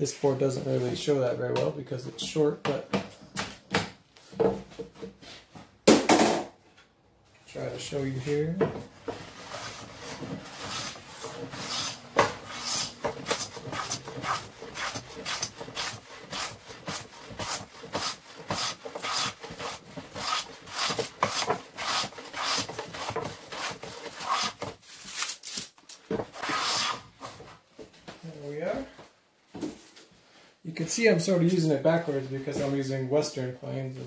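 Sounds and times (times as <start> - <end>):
hand plane shaving wood: 9.2 - 24.7, 26.4 - 27.0.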